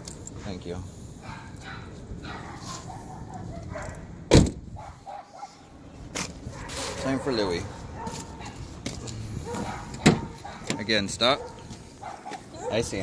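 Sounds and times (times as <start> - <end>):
dogs barking: 1.2 - 4.1, 4.8 - 5.7, 6.5 - 8.6, 9.4 - 13.0
truck door slamming: 4.3 - 4.7, 9.5 - 10.9.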